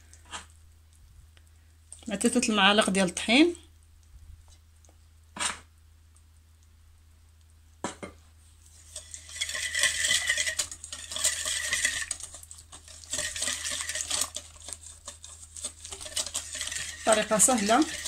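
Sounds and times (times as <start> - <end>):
whisk rattling against glass bowl: 8.8 - 18.0.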